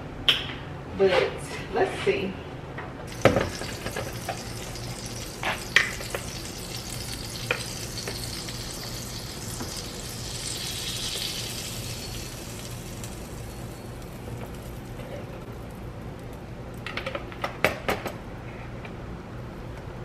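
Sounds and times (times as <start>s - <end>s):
batter sizzling: 3.1s - 16.8s.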